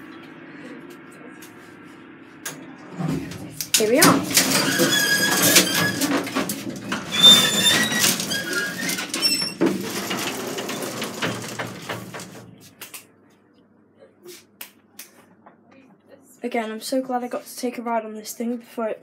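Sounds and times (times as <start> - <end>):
metal gate rattling: 3.2 - 12.6
high metal squeals: 4.0 - 12.6.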